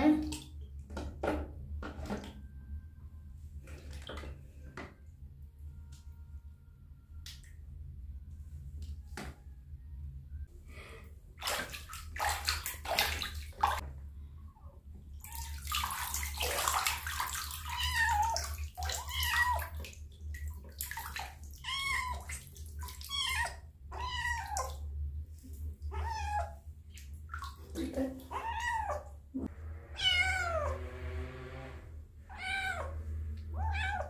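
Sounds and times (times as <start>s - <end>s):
water sloshing and splashing: 3.6s - 5.2s, 11.3s - 14.3s, 14.9s - 31.7s
kitten meowing: 30.0s - 30.8s, 32.3s - 34.0s.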